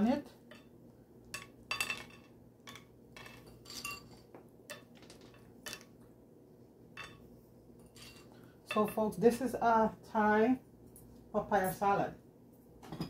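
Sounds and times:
utensil clinking on a plate: 1.4s - 5.9s, 7.0s - 7.2s.

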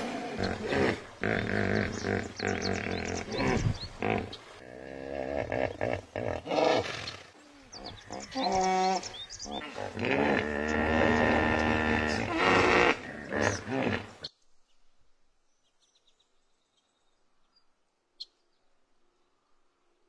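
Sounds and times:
hippopotamus grunting and honking: 0.0s - 14.3s.

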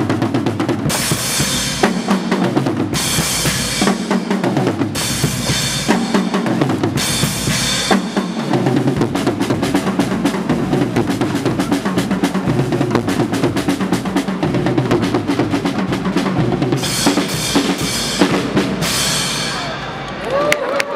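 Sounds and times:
brass band with drums playing: 0.0s - 20.1s
cymbal wash: 16.8s - 20.2s.

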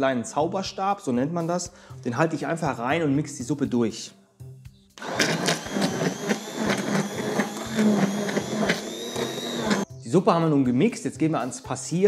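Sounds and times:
immersion blender whining: 5.0s - 9.9s.

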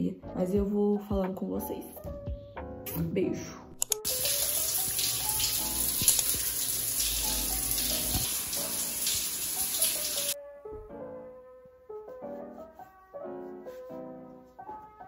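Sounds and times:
soft piano music: 0.0s - 15.0s
shower water spraying: 4.0s - 10.4s.

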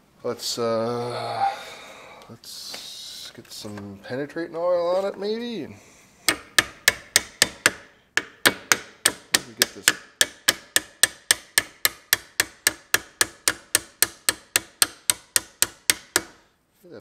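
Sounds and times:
hammer tapping on metal: 6.3s - 16.4s.

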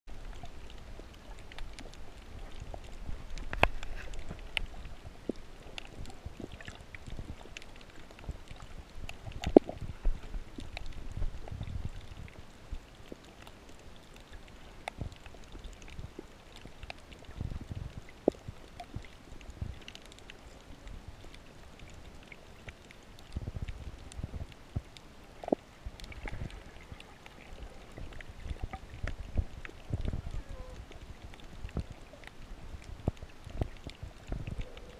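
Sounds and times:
low underwater rumble: 0.1s - 34.9s
sharp clicks and pops: 1.3s - 11.8s.

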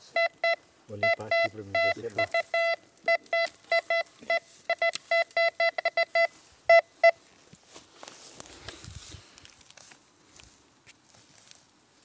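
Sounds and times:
metal detector beeping: 0.0s - 7.2s
soft rustling: 7.2s - 12.0s.

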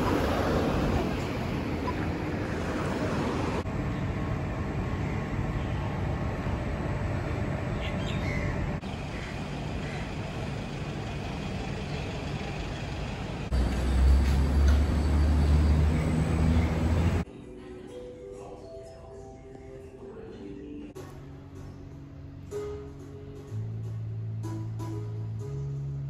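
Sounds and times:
people's voices: 0.0s - 3.5s
traffic noise: 0.0s - 17.3s
loud low-pitched hum: 2.4s - 11.0s.

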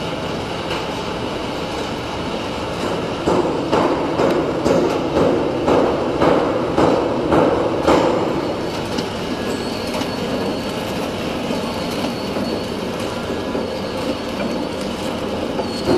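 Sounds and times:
packing machine clatter and hum: 0.0s - 15.9s
sharp knocks: 2.9s - 8.3s.

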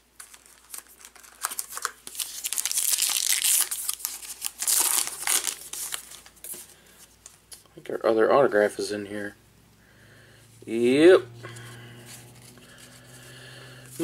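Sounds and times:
foil wrapper crinkling and tearing: 0.0s - 6.7s.

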